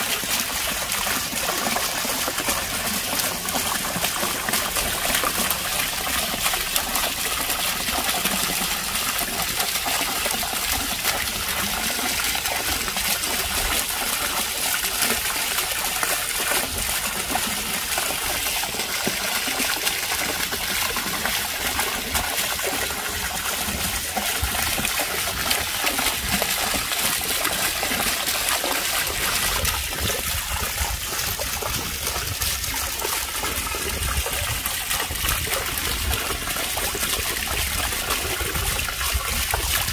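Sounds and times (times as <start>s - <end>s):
fountain water pouring and splashing: 0.0s - 39.9s.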